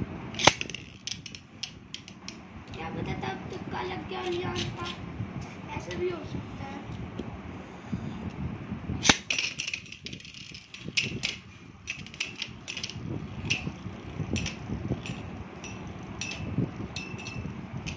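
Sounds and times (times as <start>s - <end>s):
spinning tops rattling: 0.3s - 2.4s, 9.0s - 17.9s
tops clicking and clinking: 9.1s - 17.9s.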